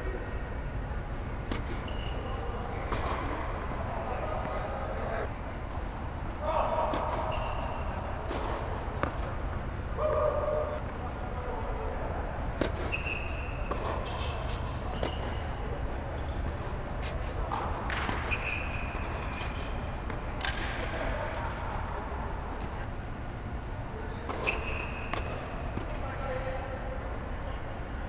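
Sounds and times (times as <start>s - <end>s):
steady low hum: 0.0s - 28.0s
sneaker squeaks: 1.3s - 4.7s, 6.6s - 10.9s, 11.8s - 21.4s, 23.4s - 26.6s
racket striking tennis ball: 1.5s - 2.2s, 2.8s - 3.3s, 6.9s - 9.6s, 12.6s - 15.5s, 16.4s - 21.0s, 24.3s - 26.0s
ball bouncing: 2.8s - 3.4s, 12.6s - 15.5s.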